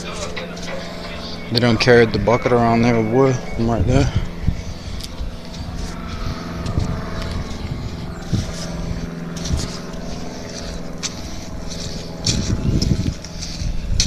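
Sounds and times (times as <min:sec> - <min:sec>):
engine humming: 0:00.0 - 0:14.0
footsteps through dry leaves: 0:04.3 - 0:14.0.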